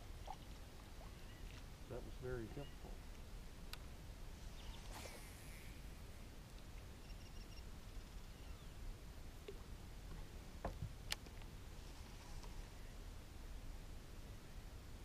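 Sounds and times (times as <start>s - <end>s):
low steady rumble: 0.0s - 15.0s
faint high chirping: 7.0s - 8.8s.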